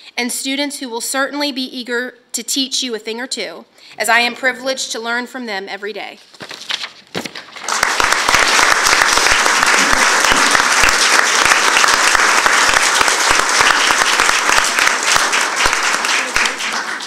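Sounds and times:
audience applauding: 7.6s - 17.0s.

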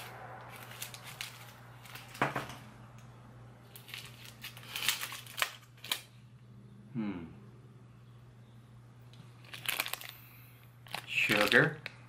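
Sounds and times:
lollipop wrapper crinkling: 0.0s - 2.2s, 3.7s - 6.1s, 9.3s - 11.8s.

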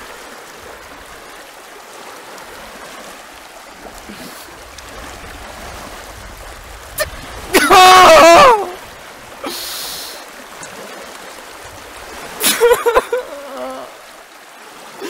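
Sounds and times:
young man crying: 7.5s - 8.8s, 12.4s - 14.1s.

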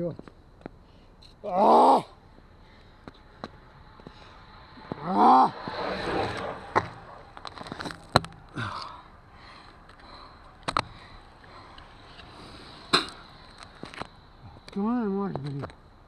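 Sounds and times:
low rustling: 2.2s - 14.6s.

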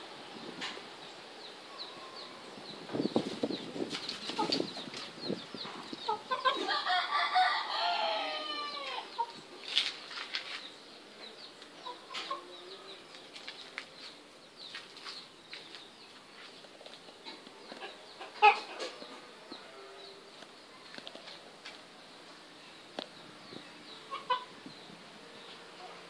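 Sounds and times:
chicken clucks: 4.2s - 6.8s, 11.8s - 12.7s, 17.3s - 19.2s, 24.1s - 24.5s
rooster crowing: 6.6s - 9.1s.

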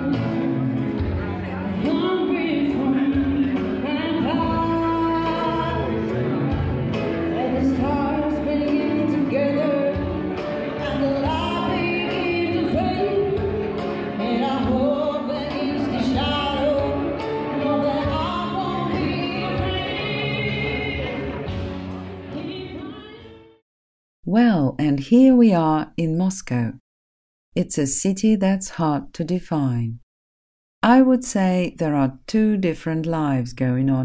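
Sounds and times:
person singing: 1.6s - 6.1s.

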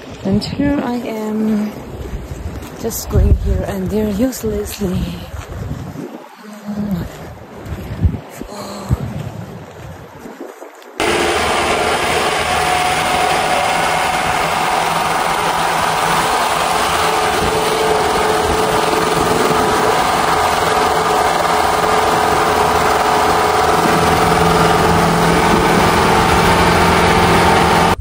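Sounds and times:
jeep engine and road noise: 11.0s - 28.0s.

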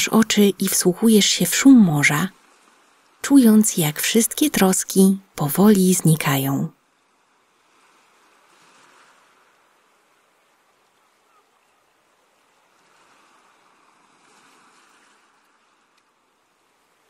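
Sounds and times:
faint waves washing ashore: 0.0s - 17.0s.

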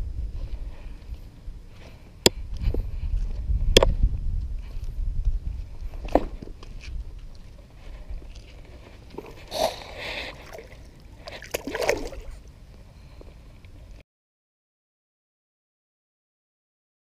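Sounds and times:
low steady rumble: 0.0s - 14.0s
water splashing and sloshing: 7.8s - 12.7s.

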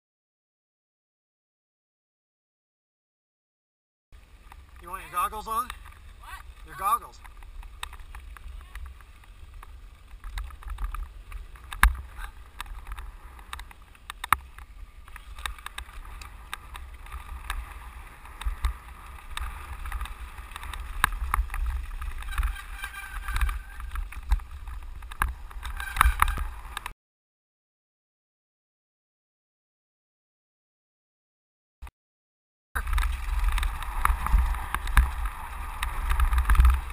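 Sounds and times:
tyres rumbling on gravel: 4.2s - 26.9s, 32.8s - 36.9s
bike rattling and knocking: 4.4s - 26.9s, 32.8s - 36.9s
wind on microphone: 5.7s - 26.9s, 32.8s - 36.9s.

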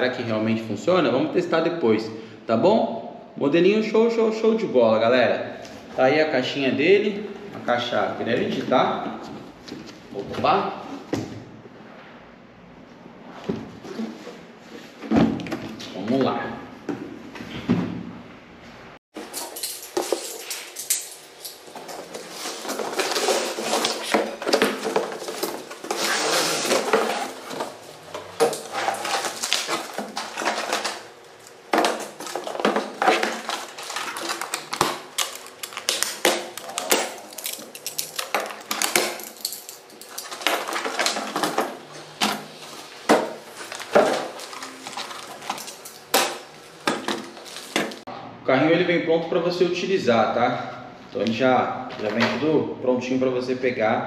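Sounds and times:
cardboard and plastic rustling: 19.2s - 48.1s.

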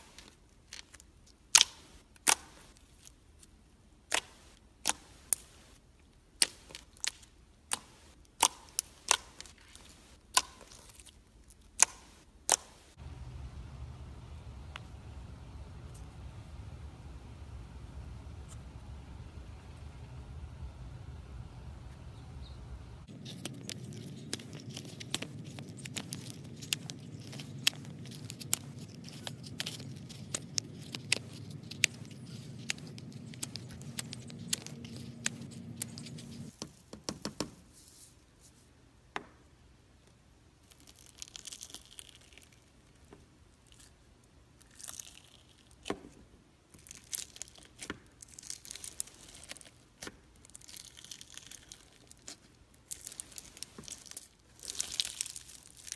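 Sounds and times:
low background rumble: 12.9s - 36.5s
crunchy slime crackling: 23.0s - 36.5s, 40.6s - 42.9s, 44.6s - 45.9s, 46.7s - 55.9s
slime squishing and popping: 23.1s - 36.5s, 46.8s - 55.9s.

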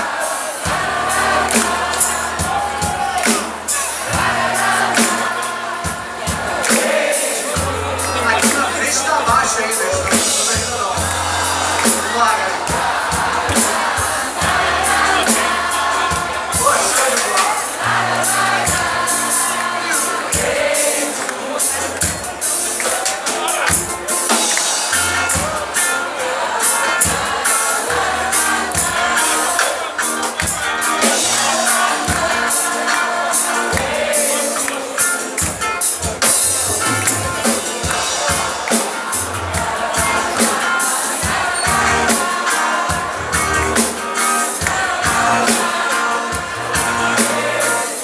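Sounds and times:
drums: 0.0s - 48.0s
bass: 7.6s - 12.2s, 13.2s - 16.8s, 36.0s - 38.4s, 41.3s - 42.2s, 43.0s - 44.0s
electric and acoustic guitars: 21.4s - 48.0s.

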